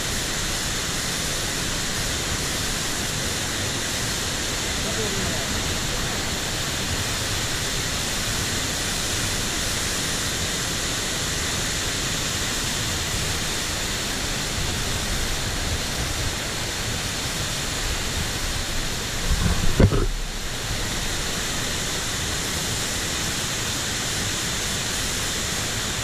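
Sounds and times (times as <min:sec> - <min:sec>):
wind buffeting microphone: 0:18.0 - 0:20.9.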